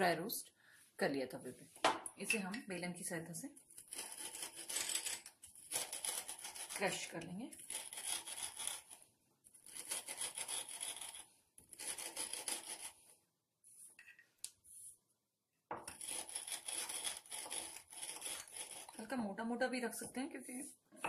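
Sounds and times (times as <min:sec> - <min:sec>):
rolling pin crushing seeds: 0:03.7 - 0:09.0, 0:09.7 - 0:13.0, 0:15.8 - 0:19.0.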